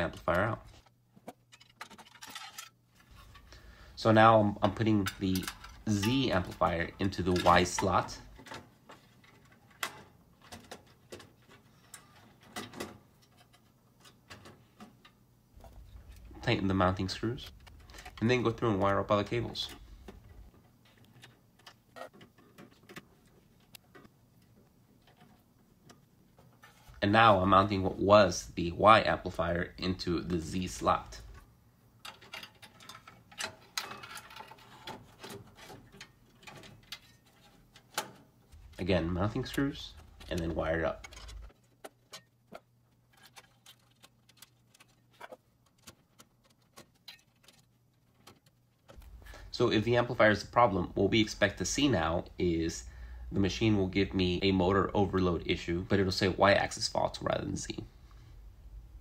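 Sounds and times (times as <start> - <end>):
metal module scraping and clicking: 30.8 - 49.1.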